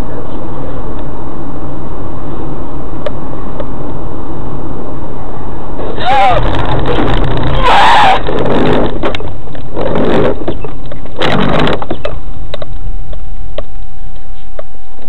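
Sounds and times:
distorted noise bursts: 5.7 - 12.8.

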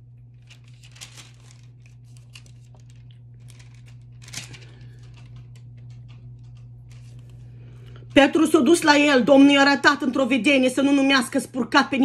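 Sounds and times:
thin pages rustling: 0.3 - 7.4.

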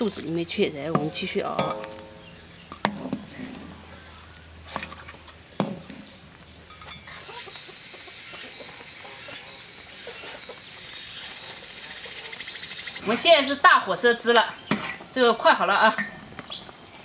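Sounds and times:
sauce sizzling and boiling: 7.2 - 13.0.

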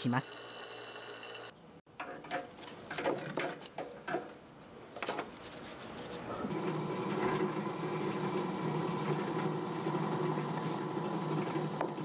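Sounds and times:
drill press motor hum: 6.4 - 12.0
drill bit boring through iron: 6.5 - 12.0.

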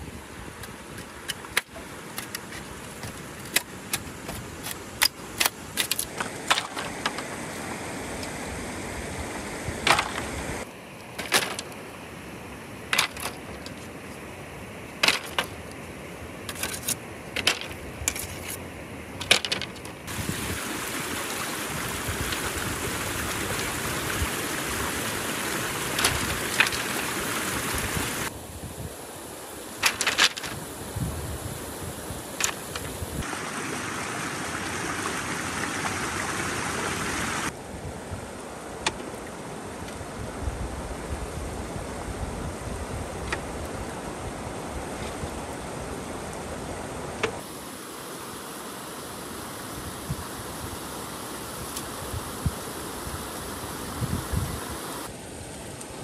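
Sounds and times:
steady hiss: 0.0 - 56.0.

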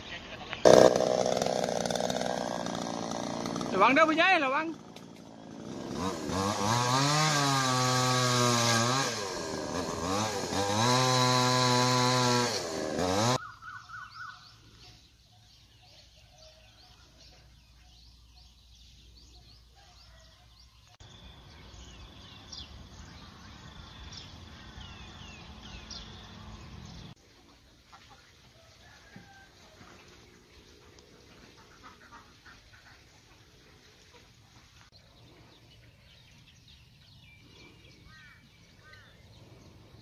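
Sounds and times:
chainsaw revving: 0.6 - 13.4
faint bird chirps: 13.4 - 26.3.

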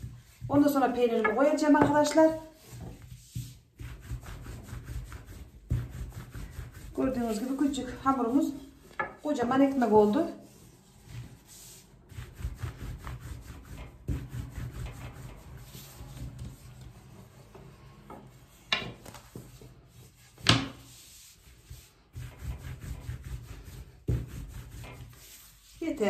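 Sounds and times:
rolling pin rubbing and knocking: 0.0 - 17.2, 18.1 - 26.0.

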